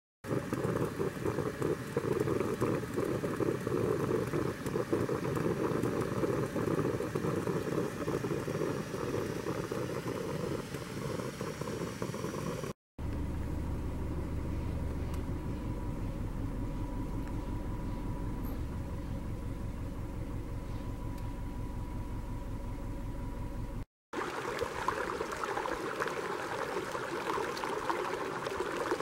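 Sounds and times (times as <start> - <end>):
coffee percolator bubbling: 0.2 - 12.8, 24.2 - 29.0
low rumbling background: 13.0 - 23.9.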